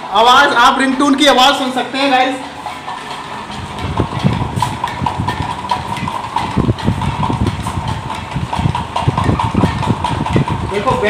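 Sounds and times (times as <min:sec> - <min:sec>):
ceiling fan thumping: 0:03.4 - 0:11.0.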